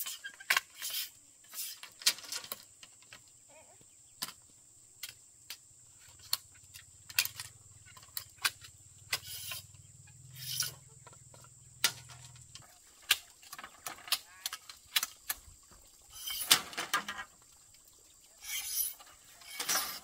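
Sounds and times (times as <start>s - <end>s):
short noisy scrapes: 9.1s - 9.7s, 10.3s - 10.8s.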